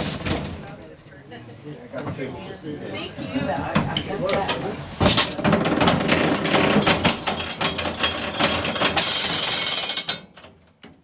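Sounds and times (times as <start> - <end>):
streetcar rattling and clattering: 3.7 - 10.7.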